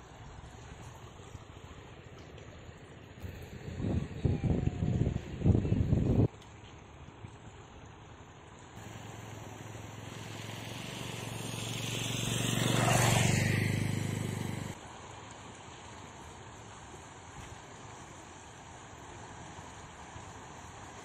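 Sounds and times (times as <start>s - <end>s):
moving water: 0.0s - 21.0s
wind: 0.0s - 21.0s
vehicle engine passing by: 8.8s - 14.8s.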